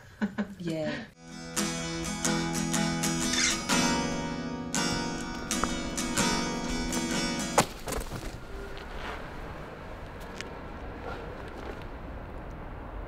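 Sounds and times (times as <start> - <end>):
strummed acoustic guitar chords: 1.2 - 7.8.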